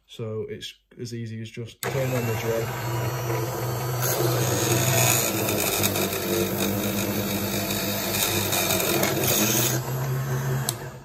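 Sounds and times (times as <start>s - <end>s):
drill bit cutting metal: 1.8s - 11.0s
drill press motor hum: 1.8s - 11.0s.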